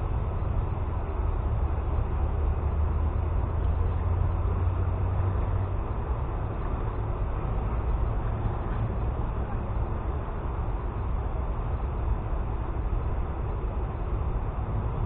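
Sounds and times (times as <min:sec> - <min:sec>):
outdoor low rumble: 0:00.0 - 0:15.0.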